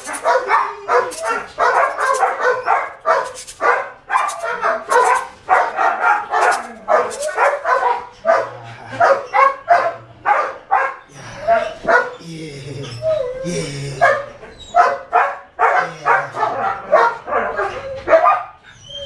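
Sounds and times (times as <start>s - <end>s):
puppy barking in short bursts: 0.0s - 8.0s.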